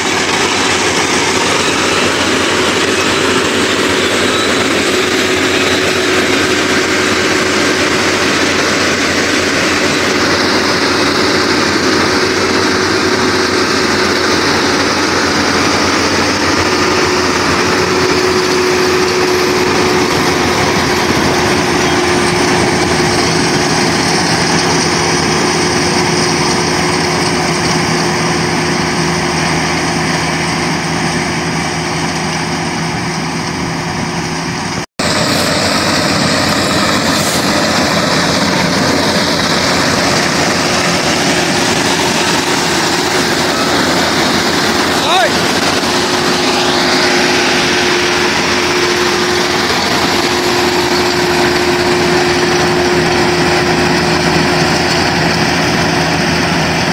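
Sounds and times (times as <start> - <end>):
combine harvester engine drone: 0.0 - 56.9.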